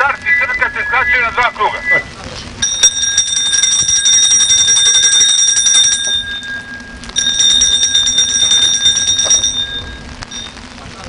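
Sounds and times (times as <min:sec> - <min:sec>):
ship's bell ringing rapidly: 0:02.6 - 0:10.8.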